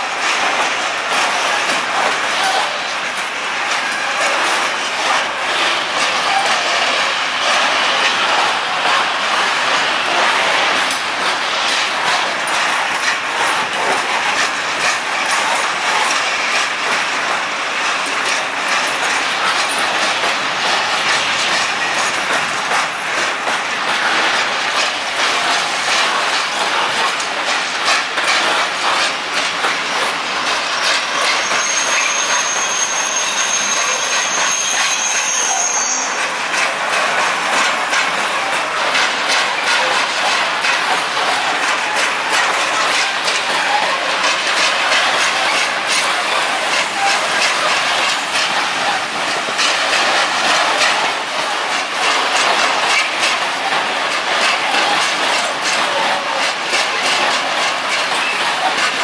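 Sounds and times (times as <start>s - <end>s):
train wheels clattering over rails: 0.0s - 59.0s
high wheel squeal: 31.1s - 36.3s.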